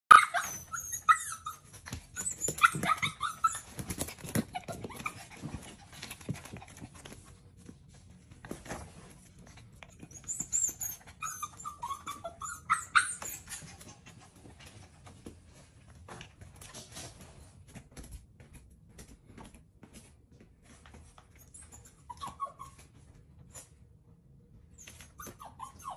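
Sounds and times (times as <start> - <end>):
puppy whining: 0.1 - 7.0, 9.4 - 14.8, 21.2 - 23.8, 24.7 - 25.9.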